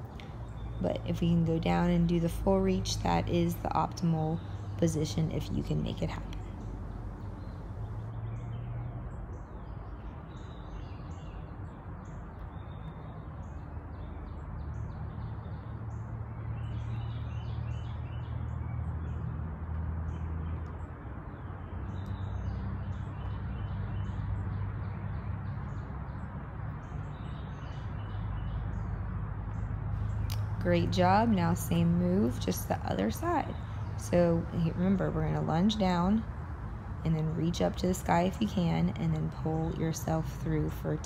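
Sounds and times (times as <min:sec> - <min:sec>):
songbirds chirping and trilling: 0:00.0 - 0:41.0
steady low hum: 0:00.0 - 0:41.0.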